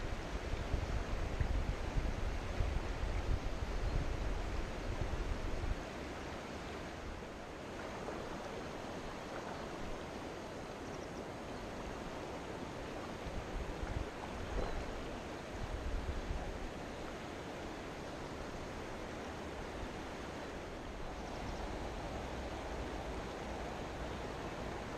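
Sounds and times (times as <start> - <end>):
wind rumbling on microphone: 0.0 - 10.3, 10.9 - 17.2
river water rushing over stones: 0.0 - 24.9.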